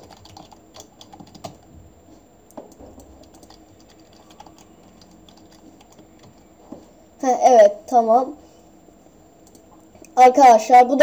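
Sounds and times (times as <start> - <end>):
keyboard typing clicks: 0.0 - 1.6, 2.7 - 6.4, 9.4 - 9.6.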